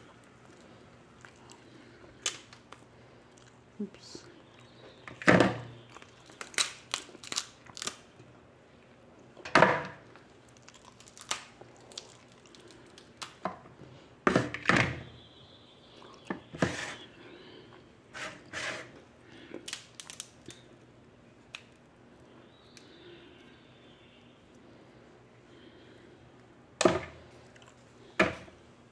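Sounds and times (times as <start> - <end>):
crab shells cracking: 1.3 - 2.8, 5.8 - 8.1, 10.2 - 13.4, 19.6 - 20.7.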